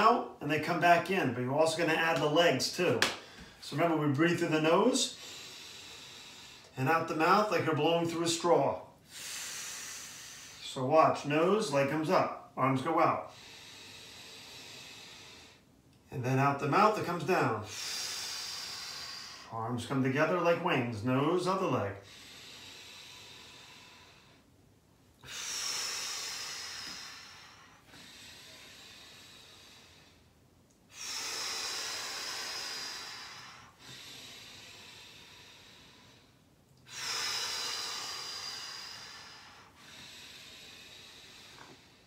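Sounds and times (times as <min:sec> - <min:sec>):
breath blown through pursed lips: 0:05.1 - 0:06.7, 0:08.9 - 0:10.8, 0:13.2 - 0:15.8, 0:17.6 - 0:19.6, 0:22.0 - 0:42.0
breathing in through nose: 0:09.0 - 0:10.6, 0:17.6 - 0:19.5, 0:25.2 - 0:30.3, 0:30.9 - 0:42.0.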